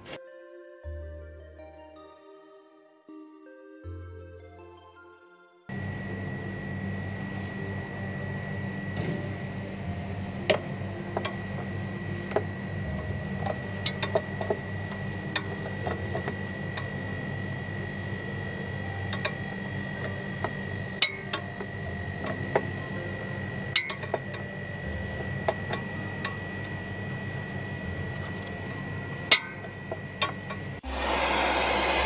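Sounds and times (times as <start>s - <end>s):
steady low hum: 5.7s - 30.9s.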